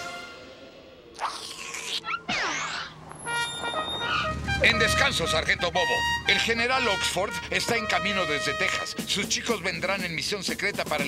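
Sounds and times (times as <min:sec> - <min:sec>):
cartoon whoosh with falling pitch: 0:01.1 - 0:04.4
held musical tones: 0:02.9 - 0:09.2.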